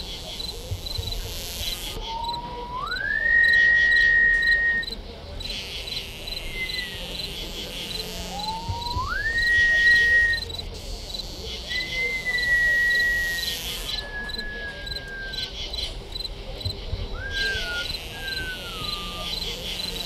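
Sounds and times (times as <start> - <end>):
crickets chirping: 0.0 - 20.0
thin whistle-like tone: 2.1 - 5.0, 6.5 - 7.0, 8.3 - 10.5, 11.7 - 15.5, 17.1 - 19.4.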